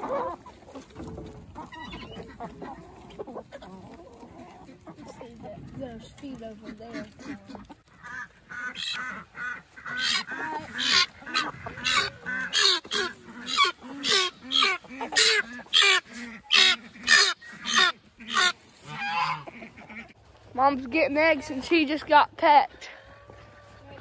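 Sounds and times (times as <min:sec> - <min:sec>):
ducks quacking: 0:00.0 - 0:24.0.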